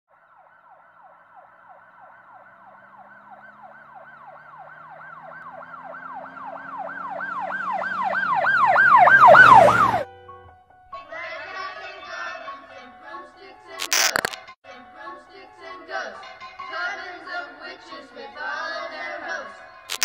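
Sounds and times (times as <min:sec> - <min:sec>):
siren-like wail: 0:00.1 - 0:10.1.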